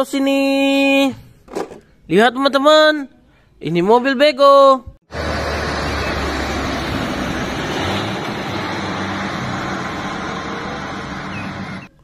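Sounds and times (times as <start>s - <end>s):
truck engine and tyre noise: 5.1s - 12.0s.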